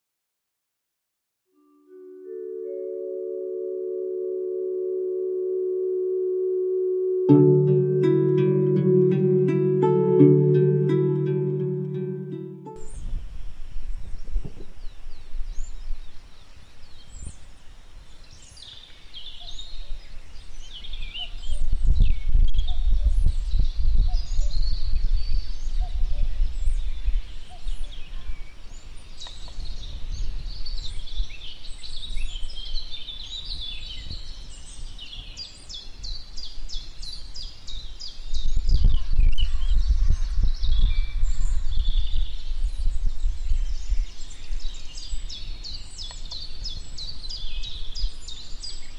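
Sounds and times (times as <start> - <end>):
birds chirping and singing: 18.3 - 48.9.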